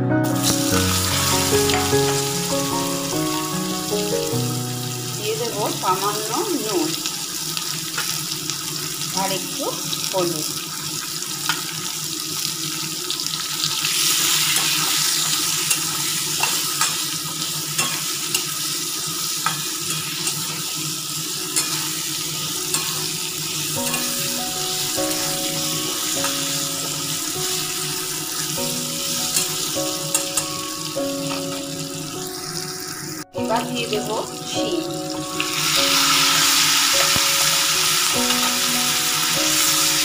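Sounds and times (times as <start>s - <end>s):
soft background melody: 0.0s - 7.6s, 19.9s - 40.0s
vegetables sizzling in hot oil: 0.2s - 40.0s.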